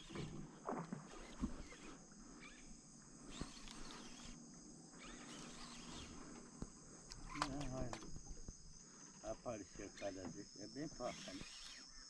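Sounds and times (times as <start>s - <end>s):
shrill insect chorus: 0.0s - 12.0s.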